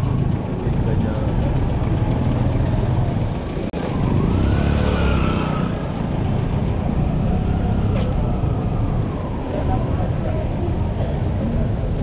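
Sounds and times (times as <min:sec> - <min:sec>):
vehicle engines rumbling: 0:00.0 - 0:12.0
engine revving: 0:03.8 - 0:08.5.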